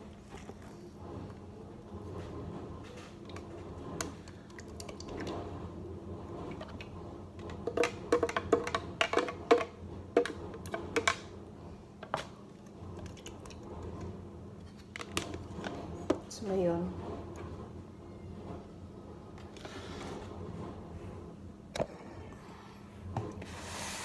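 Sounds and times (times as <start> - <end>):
plastic juicer clicking and clacking: 6.5 - 11.3.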